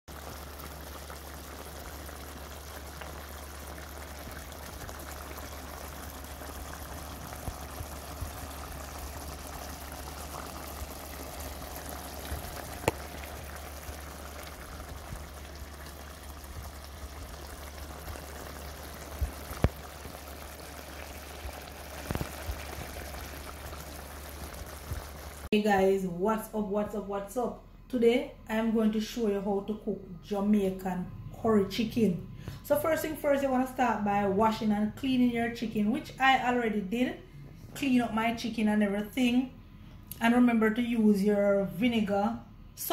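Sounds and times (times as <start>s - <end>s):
curry bubbling in a pot: 0.1s - 25.5s
low hum: 0.2s - 32.7s
sharp pops: 12.8s - 13.2s.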